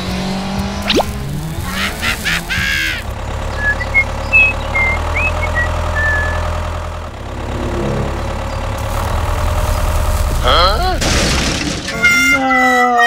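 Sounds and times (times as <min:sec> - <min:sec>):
tractor engine idling: 0:01.3 - 0:12.8
brief rising sweep: 0:07.2 - 0:10.5.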